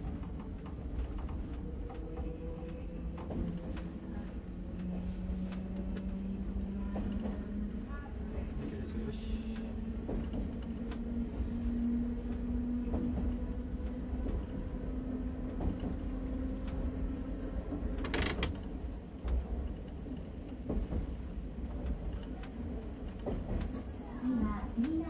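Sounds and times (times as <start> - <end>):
train rumble: 0.0 - 25.0.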